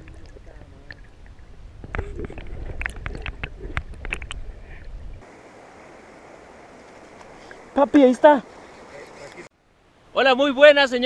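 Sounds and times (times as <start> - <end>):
river water rushing: 5.2 - 9.5.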